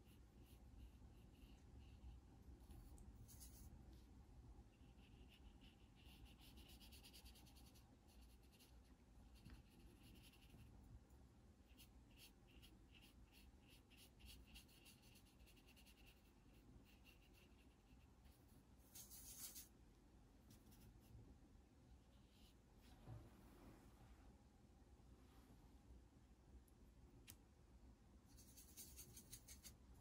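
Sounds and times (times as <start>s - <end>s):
paintbrush strokes on paper: 0.0s - 10.8s, 11.6s - 19.8s.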